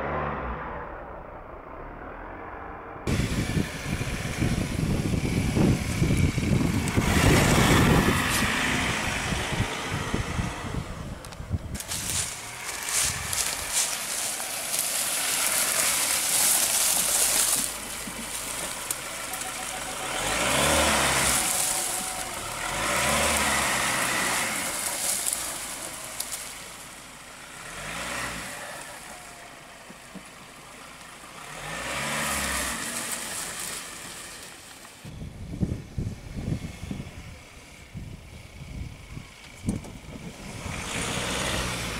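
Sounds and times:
diesel engine revving: 0:00.0 - 0:41.9
wind buffeting microphone: 0:03.0 - 0:14.9, 0:35.1 - 0:40.9
tyres rustling through leaves: 0:03.1 - 0:41.9.

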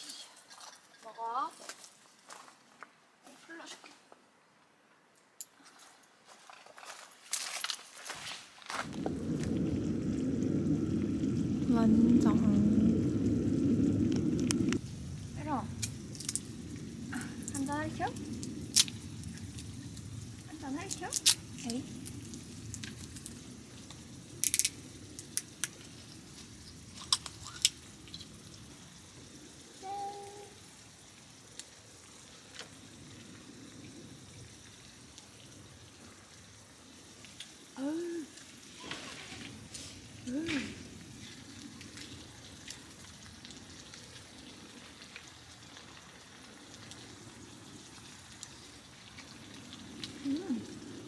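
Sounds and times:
food sizzling in a pan: 0:08.8 - 0:51.0
low background hiss: 0:08.9 - 0:38.8
small pops and spits: 0:20.9 - 0:28.4.

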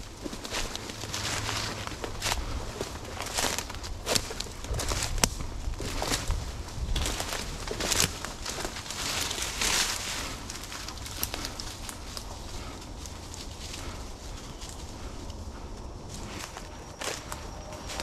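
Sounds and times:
footsteps crunching dry leaves: 0:00.0 - 0:18.0
twigs snapping underfoot: 0:00.2 - 0:13.9.

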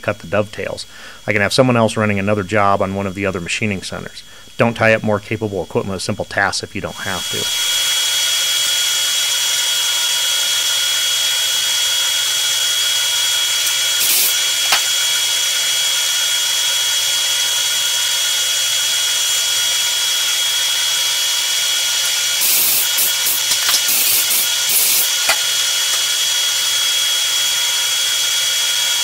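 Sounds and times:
metal lathe whining: 0:07.0 - 0:29.0.

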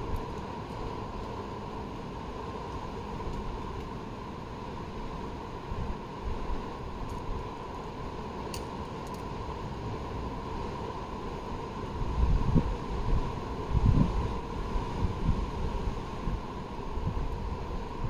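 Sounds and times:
wind noise on microphone: 0:11.5 - 0:18.0.

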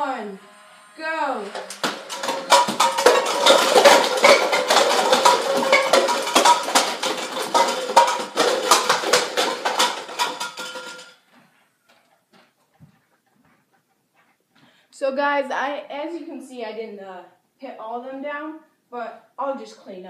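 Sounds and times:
dart blaster motor whine: 0:00.0 - 0:02.8
plastic cups clattering: 0:01.5 - 0:11.2.

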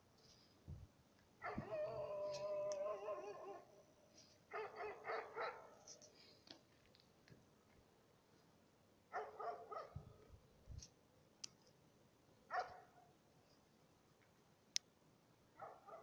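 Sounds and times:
dog barking faintly: 0:01.4 - 0:03.7, 0:04.5 - 0:06.0, 0:09.1 - 0:10.3, 0:12.5 - 0:13.1, 0:15.6 - 0:16.0.

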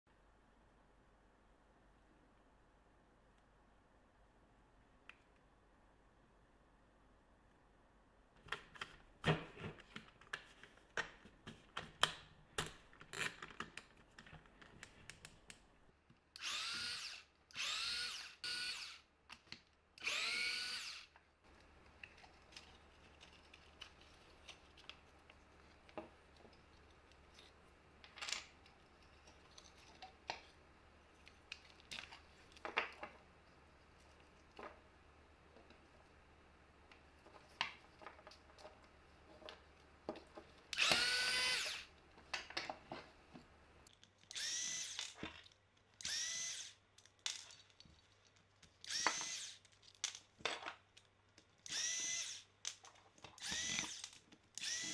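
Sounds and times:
plastic parts clicking and knocking: 0:08.4 - 0:16.9, 0:21.1 - 0:30.6, 0:31.2 - 0:33.3, 0:36.8 - 0:46.2, 0:46.9 - 0:54.9
cordless drill whining: 0:16.4 - 0:19.1, 0:20.0 - 0:21.1, 0:40.8 - 0:41.9, 0:44.3 - 0:45.2, 0:46.0 - 0:46.8, 0:48.8 - 0:49.6, 0:51.7 - 0:52.5, 0:53.4 - 0:54.9.

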